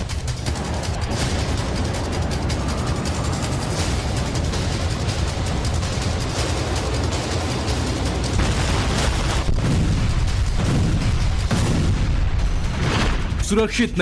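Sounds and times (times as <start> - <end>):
explosions: 0.0 - 13.6.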